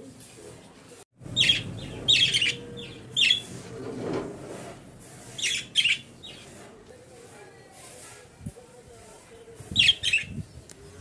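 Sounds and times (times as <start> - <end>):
budgerigars chirping: 1.3 - 3.6, 5.4 - 6.6.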